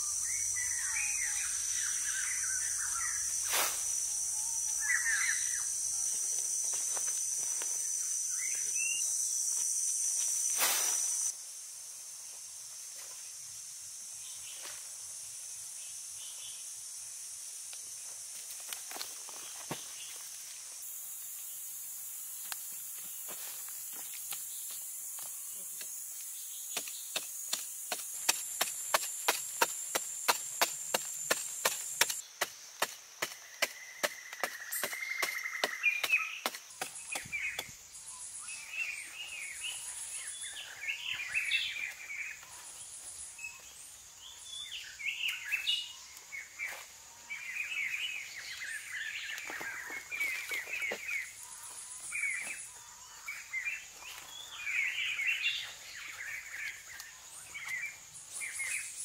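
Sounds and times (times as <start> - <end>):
high insect drone: 0.0 - 59.0
birds calling: 4.4 - 5.7, 32.8 - 42.6
digging stick striking hard earth: 26.7 - 37.7
soil scooped by hand: 26.8 - 32.2.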